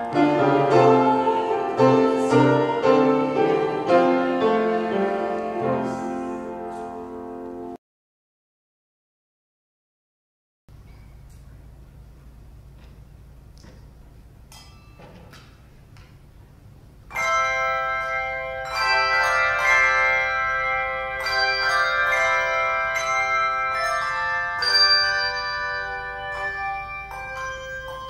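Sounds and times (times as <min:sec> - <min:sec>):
handbells ringing chords: 0:17.1 - 0:28.0.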